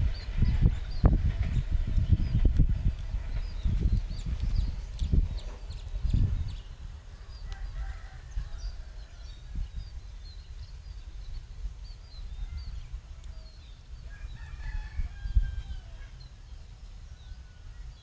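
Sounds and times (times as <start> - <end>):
small birds chirping: 0.0 - 15.0
low uneven rumble: 0.0 - 18.0.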